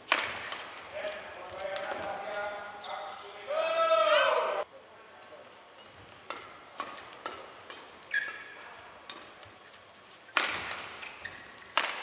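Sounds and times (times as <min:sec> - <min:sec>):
rackets hitting shuttlecock: 0:00.0 - 0:02.7, 0:05.8 - 0:09.6, 0:10.3 - 0:12.0
loud racket smash: 0:00.1 - 0:00.8, 0:10.4 - 0:11.0.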